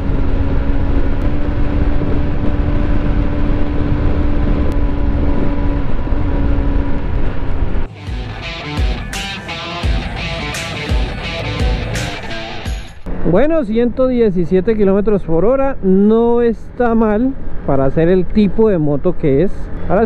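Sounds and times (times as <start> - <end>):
wind rush on microphone: 0.0 - 7.9.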